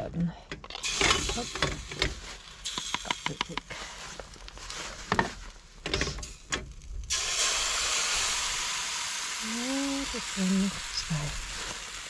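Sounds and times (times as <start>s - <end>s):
batter sizzling in hot pan: 0.8s - 4.7s, 6.8s - 12.0s.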